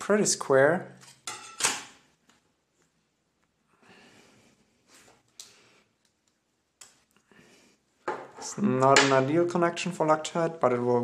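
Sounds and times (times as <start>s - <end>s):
tools handled on tabletop: 8.0s - 9.1s.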